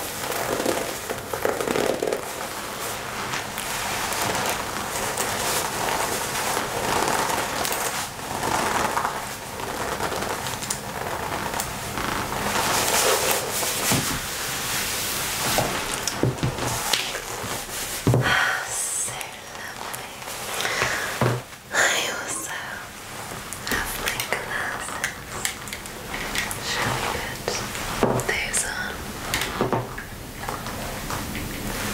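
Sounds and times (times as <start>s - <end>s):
leather jacket rustling: 0.0s - 18.1s
leather creaks and clicks: 0.1s - 14.2s.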